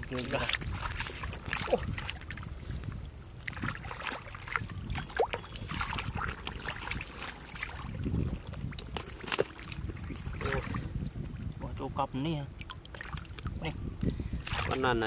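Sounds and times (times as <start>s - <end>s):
hands squelching through mud: 0.0s - 10.9s
small water splashes: 0.0s - 11.6s, 12.4s - 15.0s.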